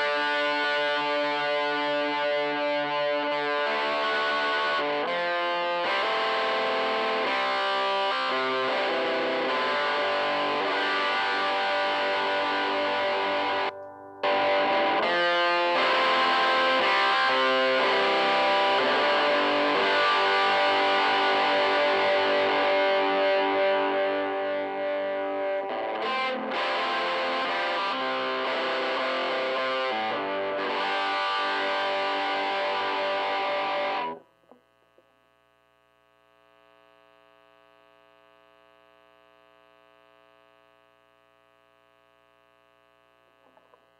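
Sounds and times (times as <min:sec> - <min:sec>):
distorted electric guitar chords: 0:00.0 - 0:34.7.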